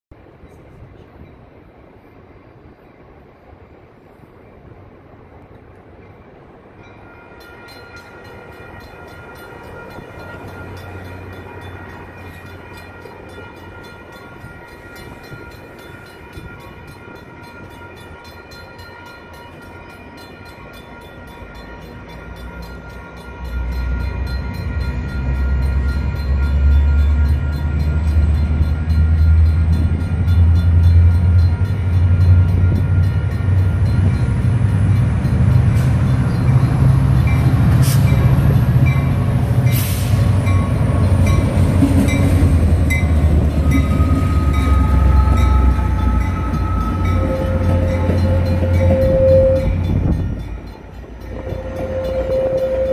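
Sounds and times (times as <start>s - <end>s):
diesel locomotive rumble: 0.1s - 52.9s
railroad crossing bells ringing: 5.8s - 52.9s.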